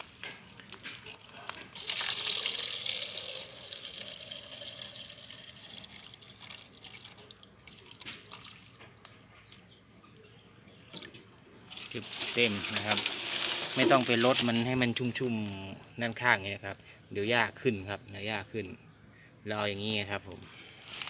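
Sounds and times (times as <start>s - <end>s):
water splashing into a plastic cup: 0.0s - 9.2s, 10.9s - 14.8s.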